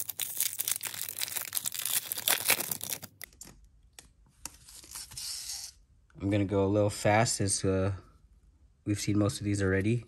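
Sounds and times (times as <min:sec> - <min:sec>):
foil wrapper tearing and crinkling: 0:00.0 - 0:03.3.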